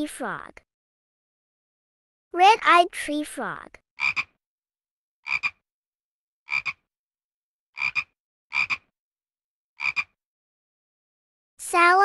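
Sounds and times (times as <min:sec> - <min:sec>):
tree frog clicking calls: 0:04.0 - 0:04.3, 0:05.2 - 0:05.6, 0:06.5 - 0:06.8, 0:07.8 - 0:08.9, 0:09.8 - 0:10.2.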